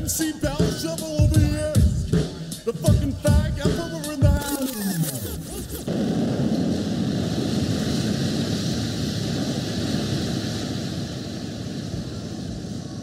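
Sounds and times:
steady rushing noise: 5.0s - 13.0s.

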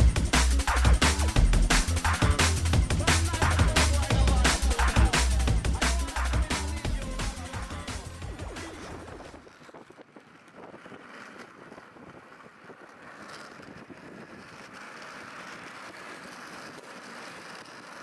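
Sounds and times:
skate wheels rolling on asphalt: 0.0s - 18.0s
wind on microphone: 6.4s - 16.0s.

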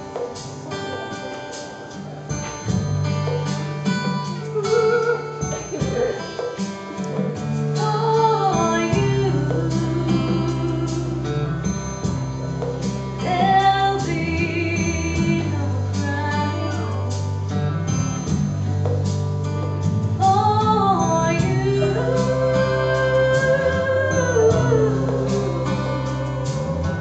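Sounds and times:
instrumental backing track: 0.0s - 27.0s
woman singing slow song: 4.0s - 12.2s, 13.2s - 17.4s, 20.2s - 27.0s.

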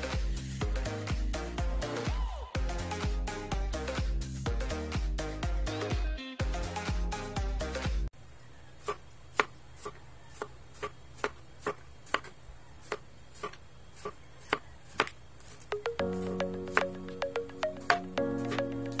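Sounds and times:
background music: 0.0s - 8.1s, 15.7s - 19.0s
knife chopping on cutting board: 8.8s - 15.8s.

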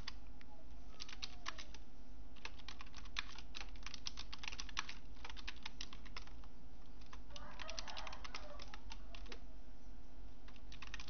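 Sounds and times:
low background hum: 0.0s - 11.0s
computer keyboard typing: 0.9s - 1.8s, 2.4s - 9.4s, 10.5s - 11.0s.

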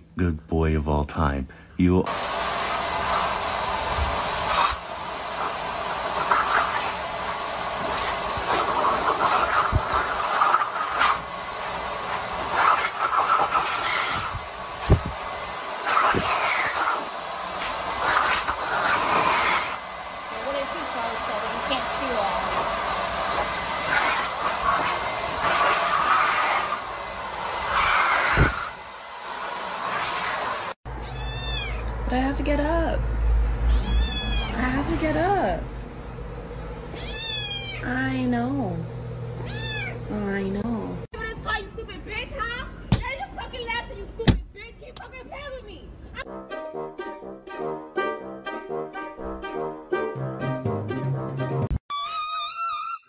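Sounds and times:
air rushing through hose nozzle: 2.1s - 30.8s.

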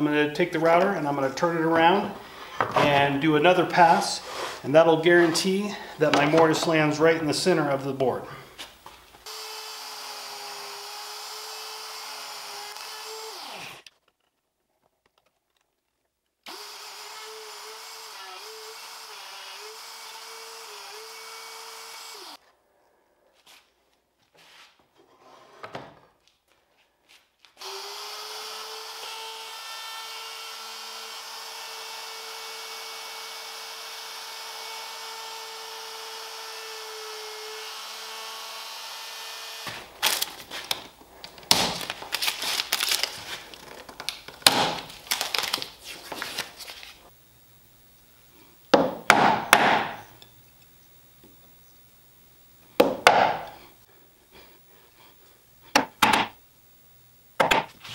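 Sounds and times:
router running: 9.3s - 13.9s, 16.5s - 22.4s, 27.6s - 40.3s.

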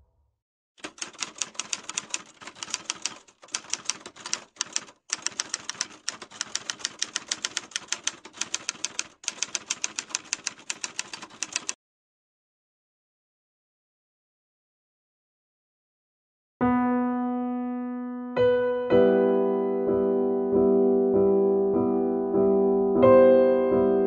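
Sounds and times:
typewriter key clicks: 0.8s - 11.8s.

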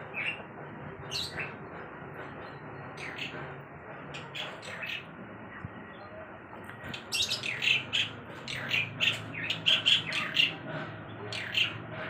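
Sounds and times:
birds chirping and squawking: 0.0s - 5.1s, 6.8s - 12.0s.

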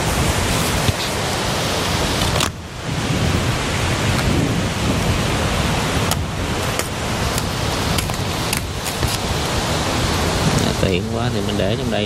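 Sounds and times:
strong wind buffeting microphone: 0.0s - 12.0s.

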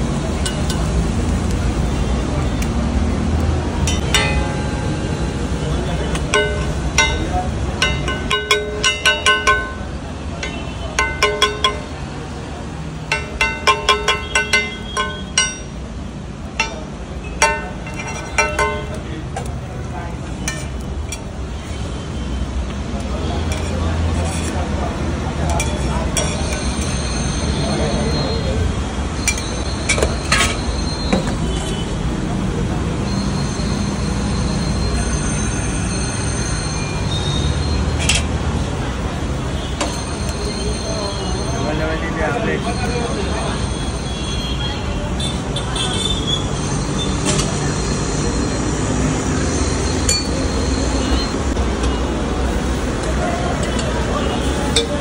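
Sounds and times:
rumbling stall background noise: 0.0s - 33.1s
background chatter: 0.0s - 55.0s
metal clinks of cooking utensils: 0.4s - 1.0s, 3.8s - 12.2s, 13.1s - 15.8s, 16.6s - 19.5s, 20.4s - 21.8s, 23.4s - 24.6s, 25.4s - 27.5s, 29.2s - 31.8s, 49.9s - 50.5s.

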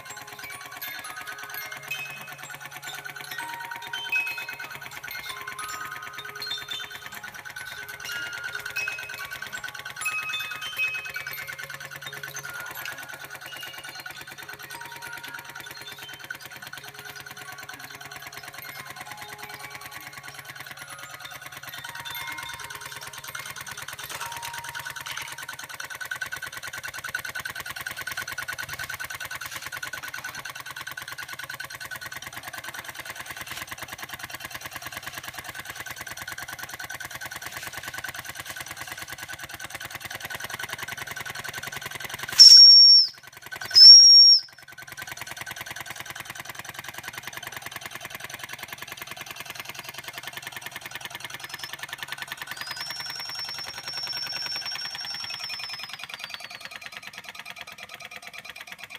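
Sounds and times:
model steam engine chuffing: 0.0s - 58.9s
high-pitched steam whistle blasts: 42.3s - 44.6s, 52.6s - 56.4s.

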